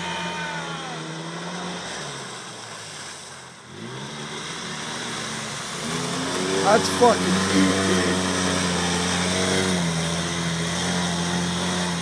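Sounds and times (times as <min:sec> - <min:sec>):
vehicle engine running: 0:00.0 - 0:12.0
vehicle ploughing through muddy water: 0:00.0 - 0:12.0.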